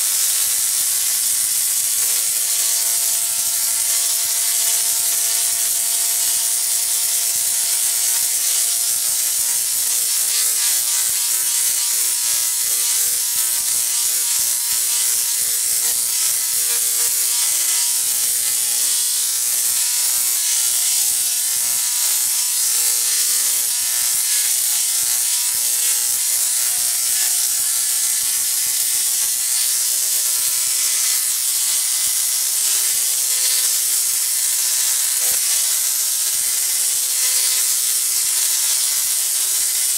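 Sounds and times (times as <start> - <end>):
tesla coil buzzing crackle: 0.0 - 39.9.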